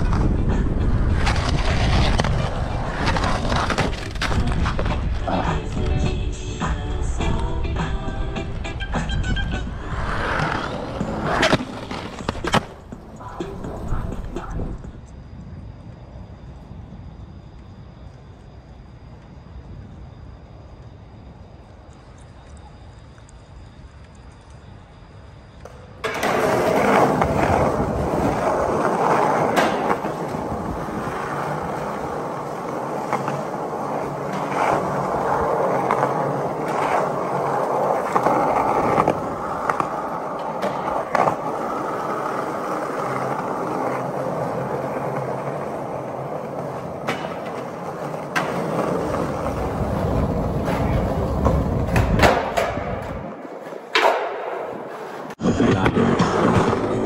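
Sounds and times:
skateboard wheels rolling on concrete: 0:00.0 - 0:57.0
skateboard clacks: 0:08.7 - 0:15.0, 0:25.6 - 0:57.0.

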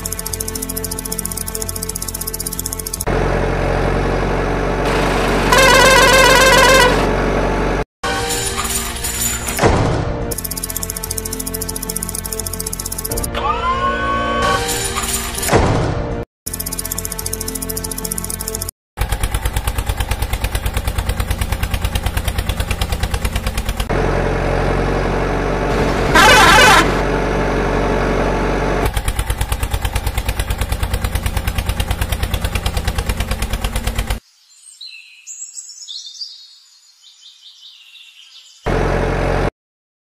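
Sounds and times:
tractor engine chugging: 0:00.0 - 0:07.8, 0:10.4 - 0:13.3, 0:16.5 - 0:34.2.

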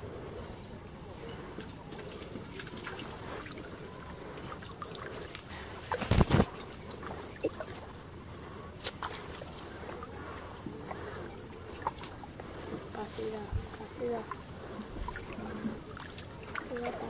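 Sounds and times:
floodwater sloshing and trickling: 0:00.0 - 0:17.0
small water splashes: 0:01.5 - 0:12.4, 0:13.0 - 0:17.0
leaves rustling against camera: 0:05.1 - 0:08.0.

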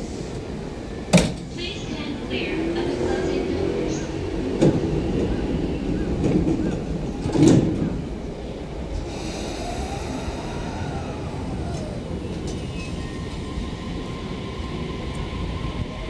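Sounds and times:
wheels rumbling on rails: 0:01.4 - 0:16.0
train motor whine: 0:08.9 - 0:16.0.

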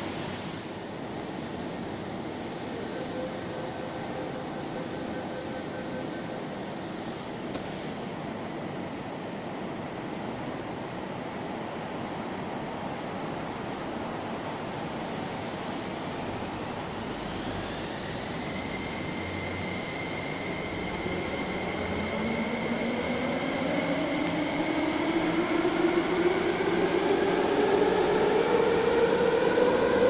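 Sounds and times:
steady hiss: 0:00.0 - 0:10.3
train traction motors whining: 0:01.6 - 0:07.4, 0:15.7 - 0:30.0.

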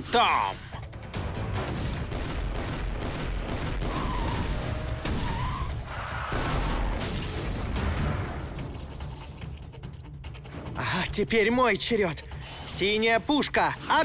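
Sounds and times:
background music: 0:00.0 - 0:14.0
rumbling crackling energy blast: 0:01.6 - 0:09.1.

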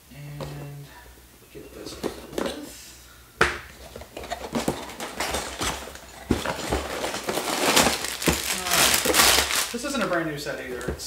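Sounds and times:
rustling of cardboard and plastic bags: 0:03.7 - 0:11.0.

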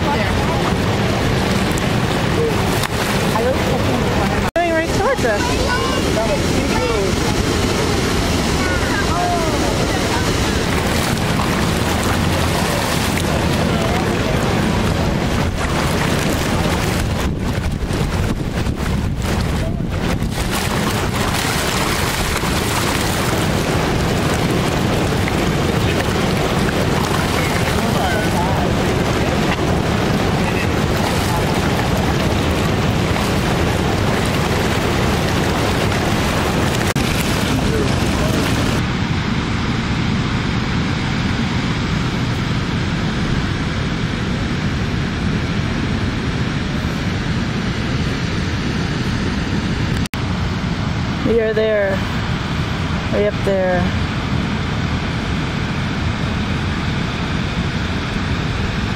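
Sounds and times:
river water rushing through rapids: 0:00.0 - 0:39.0
fish splashing at the surface: 0:09.3 - 0:18.1, 0:19.2 - 0:38.8.

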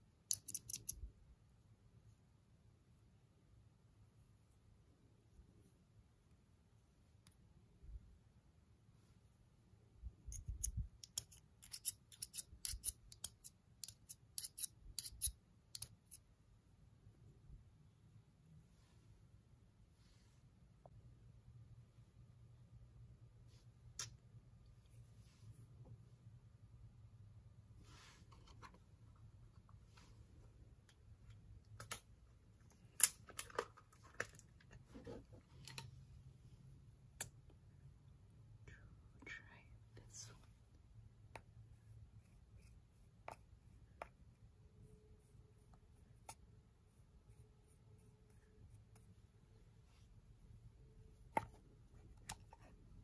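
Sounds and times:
faint low hum: 0:00.0 - 0:53.0
small objects clicking and tapping: 0:00.3 - 0:01.0, 0:10.3 - 0:16.2.

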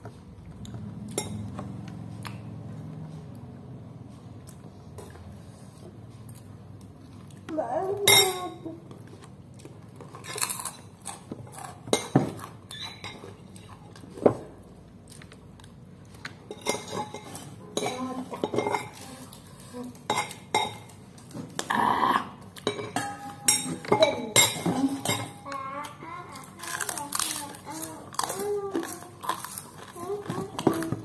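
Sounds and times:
metal spoon clinking on ceramic bowl: 0:22.6 - 0:25.4.

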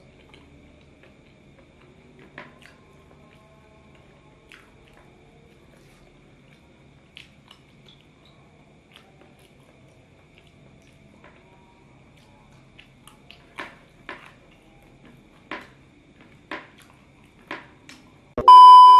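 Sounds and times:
person chewing: 0:00.0 - 0:11.2, 0:15.0 - 0:18.0
faint steady hum: 0:00.0 - 0:18.9.

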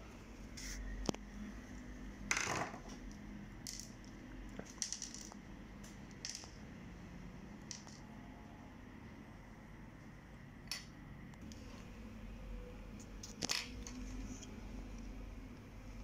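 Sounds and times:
plastic parts clicking and clattering: 0:07.6 - 0:08.0, 0:13.2 - 0:14.1.

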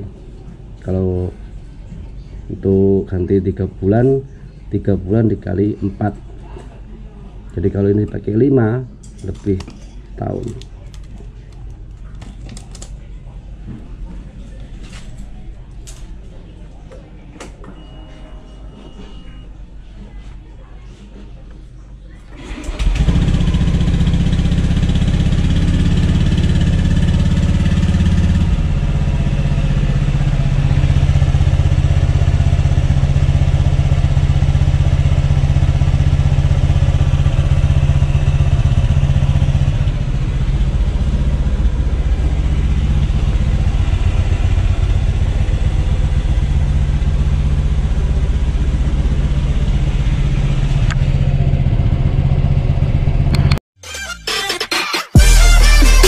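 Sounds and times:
scooter engine starting and idling: 0:22.3 - 0:53.6.

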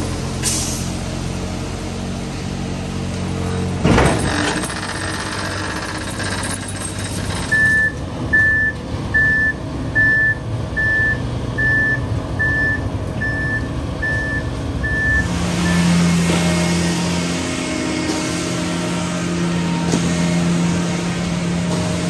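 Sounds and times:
diesel truck engines rumbling: 0:00.0 - 0:22.0
truck backup alarm beeping: 0:07.4 - 0:17.1.

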